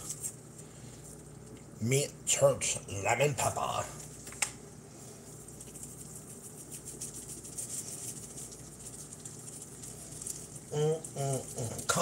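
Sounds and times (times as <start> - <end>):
fish frying in butter: 5.9 - 12.0.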